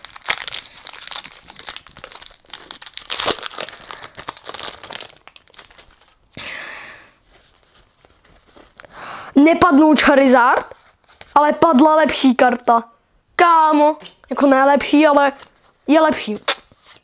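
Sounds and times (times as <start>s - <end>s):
foil wrapper crinkling and tearing: 0.0s - 6.4s.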